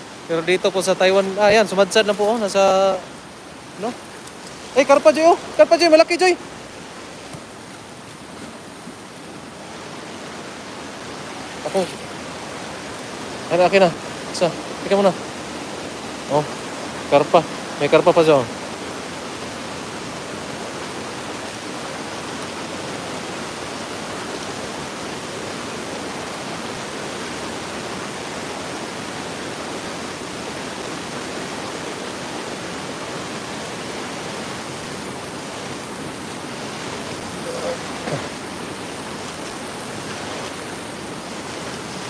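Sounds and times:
floodwater rushing: 0.0s - 42.0s
boots splashing through water: 39.0s - 42.0s.

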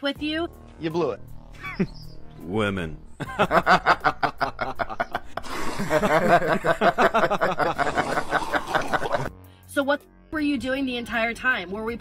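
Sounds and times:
person laughing loudly: 1.6s - 1.9s, 3.2s - 9.3s.

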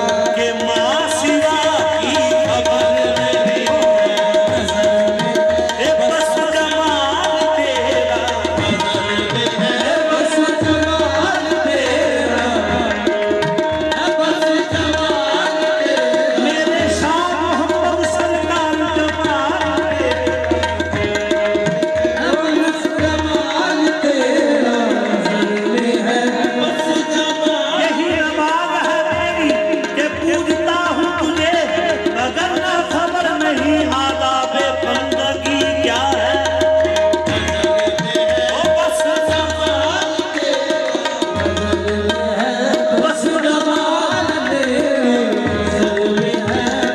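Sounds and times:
harmonium with held note: 0.0s - 46.9s
tabla playing steady rhythm: 0.0s - 46.9s.

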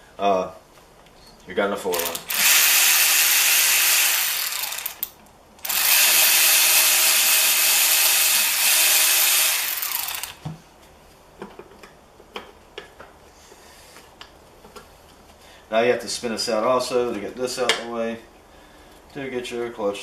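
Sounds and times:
cordless electric ratchet running: 1.9s - 10.4s.

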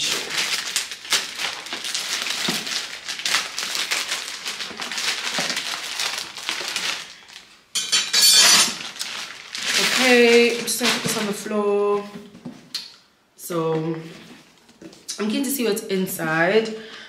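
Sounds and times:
packaging tearing: 0.0s - 7.5s, 8.4s - 11.3s
packaging crinkling and crackling: 0.0s - 7.6s, 8.4s - 12.4s.

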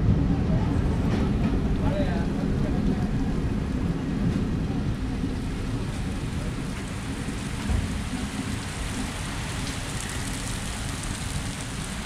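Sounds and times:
heavy rain pouring: 0.0s - 12.0s
low continuous rumble: 0.0s - 12.0s.

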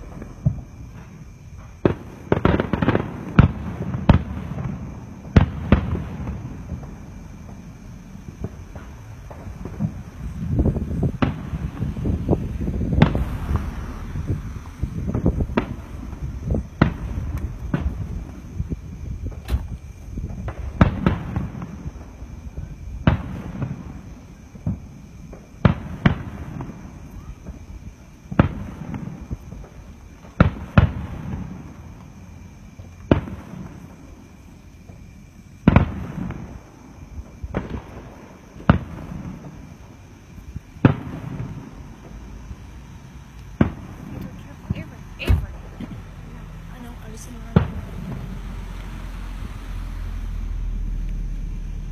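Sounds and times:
firework shells bursting: 0.0s - 27.6s
low rumble of booms: 0.0s - 51.9s.

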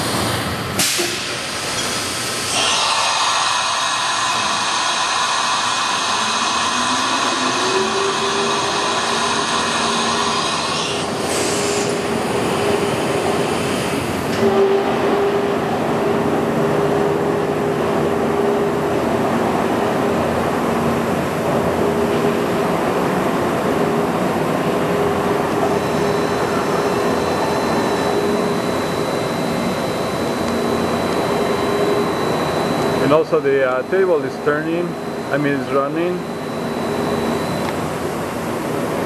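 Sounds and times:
mechanical hum: 0.0s - 39.0s
loud hiss: 0.1s - 12.0s
steady low whine: 15.3s - 39.0s.

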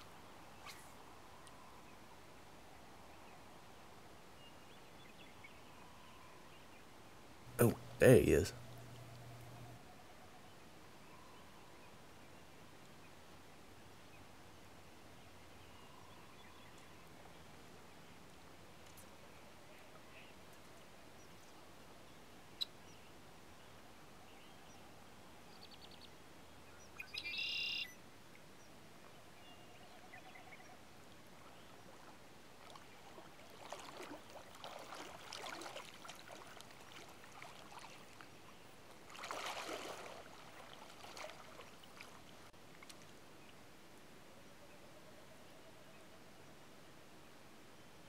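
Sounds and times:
faint stream: 0.0s - 48.0s
water splashing: 32.6s - 38.2s, 39.1s - 43.0s.

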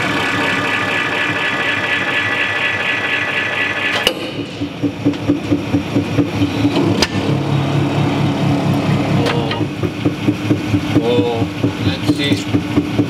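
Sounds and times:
hydraulic pump whining: 0.0s - 13.0s
press pulsing: 0.0s - 13.0s.

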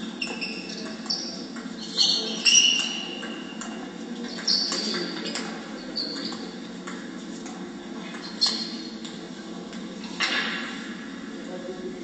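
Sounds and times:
shoes squeaking on hall floor: 0.0s - 7.4s, 8.0s - 9.1s.

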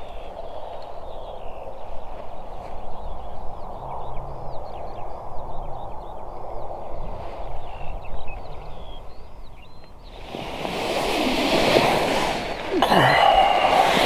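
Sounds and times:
small birds chirping: 0.0s - 10.4s.

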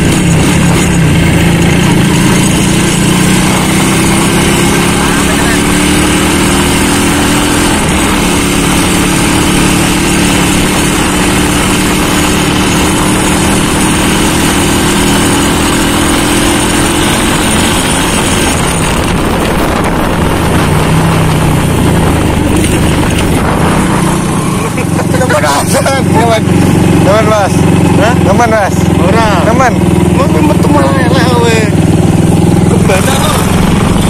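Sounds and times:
small motorcycle engine running: 0.0s - 34.0s
wind rush on microphone: 17.3s - 24.8s, 31.7s - 34.0s.

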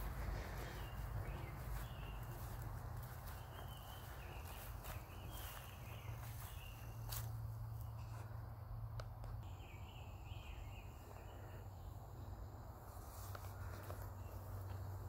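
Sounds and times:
light footsteps: 0.0s - 8.4s.

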